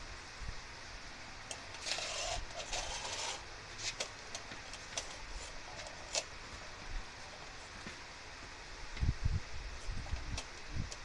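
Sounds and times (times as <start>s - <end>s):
scraping rustle: 1.7s - 8.1s.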